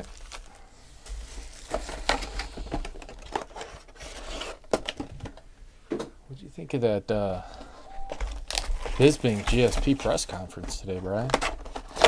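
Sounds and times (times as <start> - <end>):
foil packs crinkling: 0.0 - 5.0, 8.1 - 12.0.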